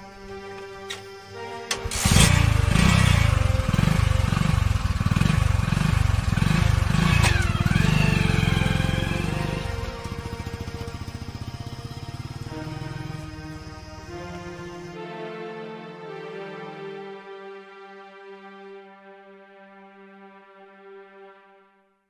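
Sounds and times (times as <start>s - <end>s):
background music: 0.0s - 22.0s
engine running loudly: 0.4s - 15.0s.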